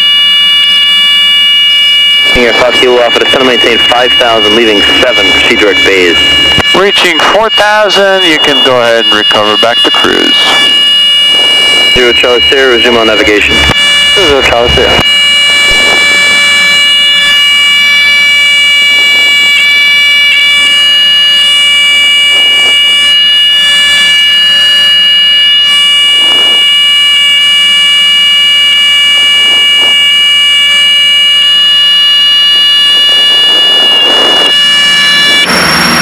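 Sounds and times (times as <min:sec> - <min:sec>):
aircraft engines droning: 0:02.3 - 0:06.6.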